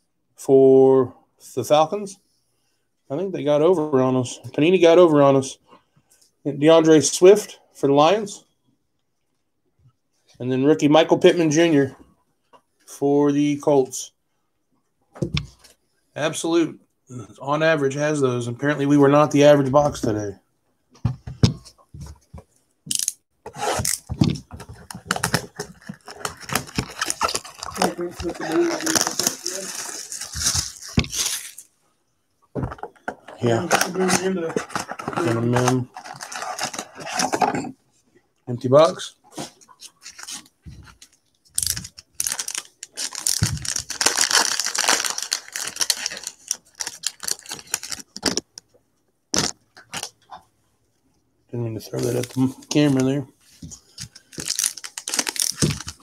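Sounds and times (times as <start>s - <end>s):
cardboard rustling: 23.4s - 31.7s, 32.6s - 37.5s, 51.9s - 56.0s
foil pack crinkling and tearing: 24.9s - 31.7s, 41.5s - 48.4s, 54.2s - 56.0s
cards clicking and crackling: 54.0s - 56.0s.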